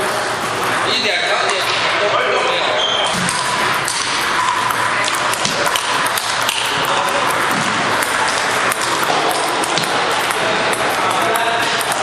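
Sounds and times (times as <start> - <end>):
busy hall din: 0.0 - 12.0
table tennis balls clicking: 3.1 - 12.0.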